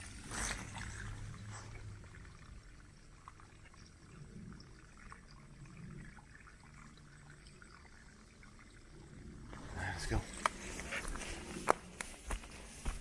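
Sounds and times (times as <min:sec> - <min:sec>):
faint trickle of water: 0:00.0 - 0:12.8.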